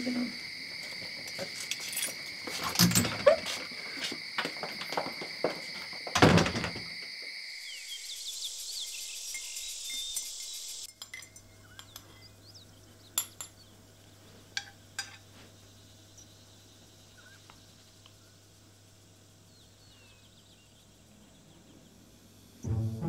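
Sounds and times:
crickets trilling: 0:00.0 - 0:23.0
teacup clinking: 0:10.9 - 0:12.1
low steady hum: 0:22.4 - 0:23.0.

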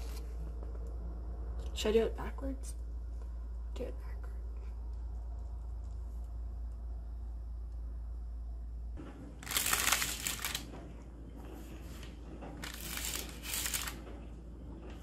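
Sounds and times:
low steady hum: 0:00.0 - 0:15.0
parchment paper crinkling: 0:09.4 - 0:10.7, 0:12.6 - 0:14.0.

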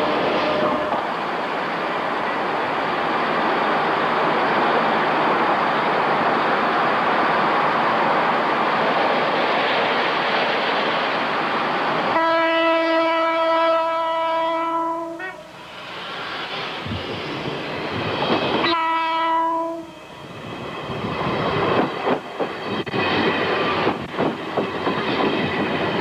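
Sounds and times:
train horn blast: 0:00.0 - 0:01.0, 0:12.1 - 0:15.6, 0:18.6 - 0:20.0
train rumbling on rails: 0:00.0 - 0:26.0.

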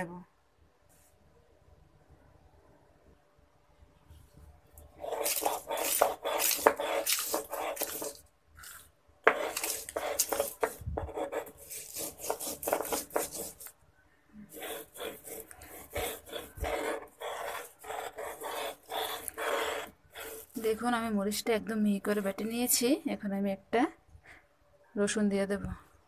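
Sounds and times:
stone roller grinding and scraping: 0:05.0 - 0:13.7, 0:14.6 - 0:20.8.

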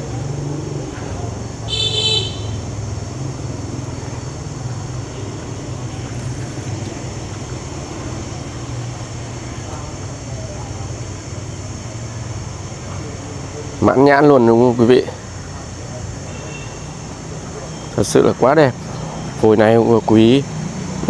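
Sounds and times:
constant hiss: 0:00.0 - 0:21.0.

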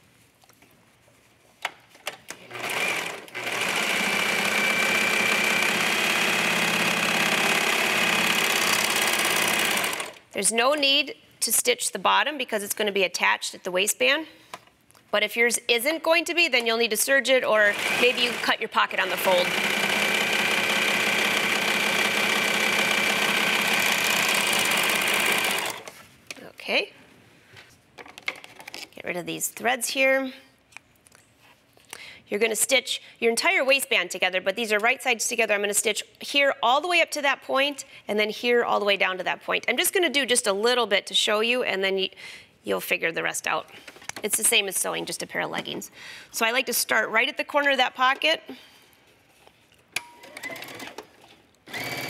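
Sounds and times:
serger machine sewing: 0:02.5 - 0:10.2, 0:17.6 - 0:25.9, 0:50.2 - 0:51.0, 0:51.7 - 0:52.0.

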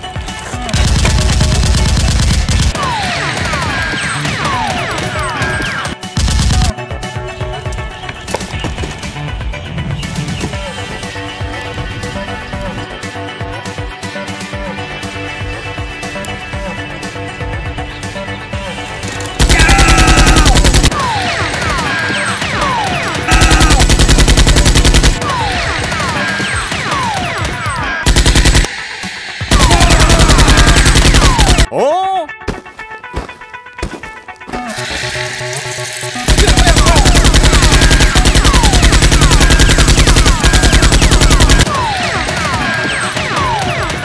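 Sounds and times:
background music: 0:00.0 - 0:44.0
automatic gunfire bursts: 0:19.4 - 0:21.0, 0:23.3 - 0:25.9, 0:28.1 - 0:28.7, 0:29.5 - 0:31.7, 0:36.3 - 0:42.3.

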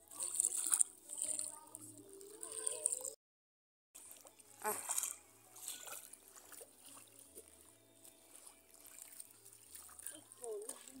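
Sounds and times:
shallow water trickling and splashing: 0:00.0 - 0:03.2, 0:04.0 - 0:11.0.

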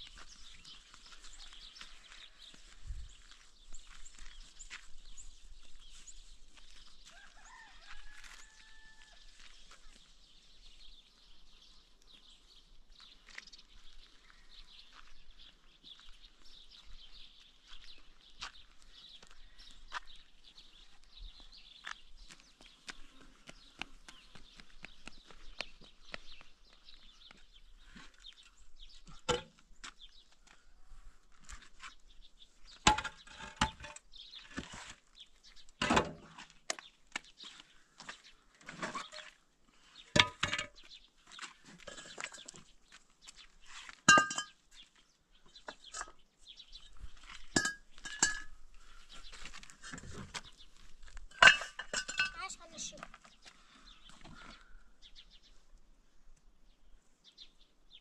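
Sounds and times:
concrete blocks knocking together: 0:32.9 - 0:34.0, 0:40.2 - 0:40.8, 0:44.1 - 0:44.6, 0:47.5 - 0:48.5, 0:51.3 - 0:52.4.

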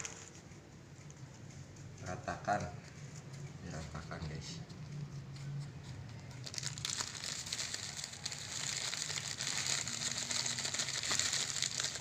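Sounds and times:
plastic packet crinkling: 0:06.4 - 0:12.0.

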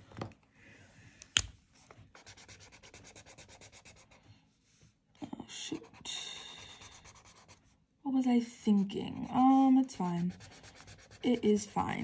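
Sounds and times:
marker rubbing on paper: 0:02.2 - 0:04.2, 0:05.7 - 0:07.6, 0:09.2 - 0:12.0.

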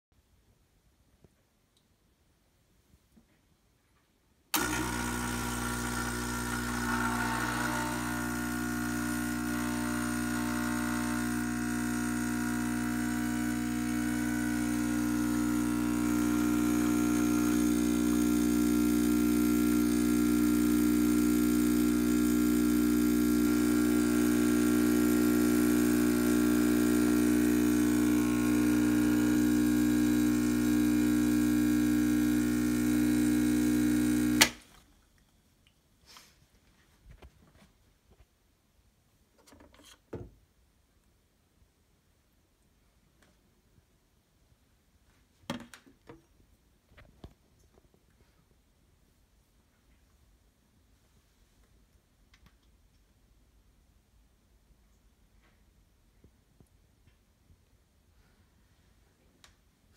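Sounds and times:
espresso machine pump buzzing: 0:04.6 - 0:34.6.

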